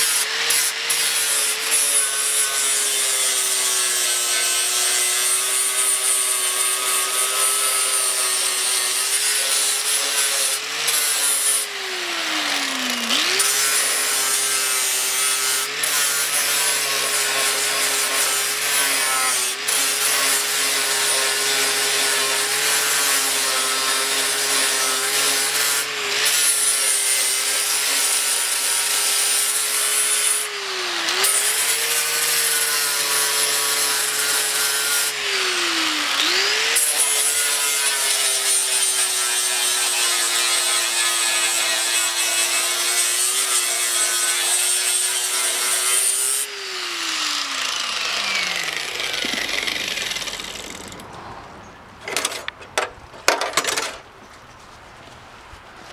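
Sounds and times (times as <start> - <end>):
angle grinder motor whine: 9.7 - 22.4, 30.3 - 37.3, 44.0 - 51.1
grinding disc scraping metal: 41.6 - 51.1.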